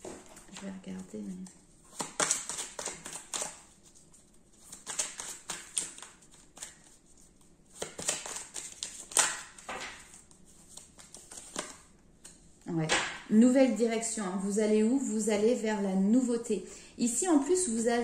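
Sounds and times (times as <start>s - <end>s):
cards rustling and sliding: 1.9s - 12.4s.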